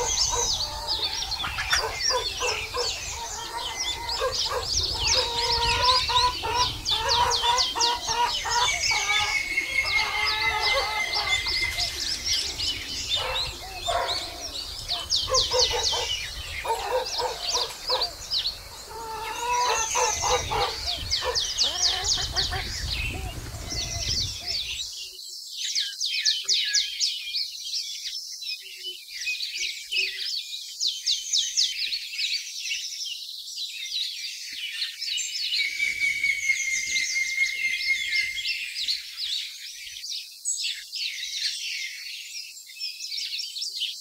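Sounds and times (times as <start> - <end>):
lower longer bird calls: 0.0 - 25.2, 35.5 - 40.0
birds chirping: 0.0 - 27.6, 34.6 - 42.6.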